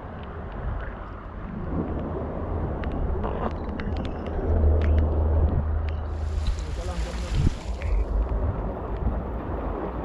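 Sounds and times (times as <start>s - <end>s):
wind rumbling on microphone: 0.0s - 10.0s
sea water washing against rocks: 6.1s - 10.0s.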